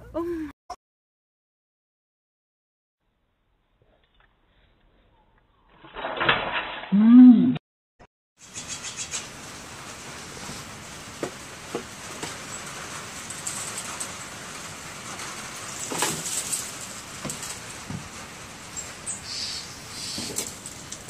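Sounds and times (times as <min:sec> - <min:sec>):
steady hiss: 0:08.4 - 0:21.0.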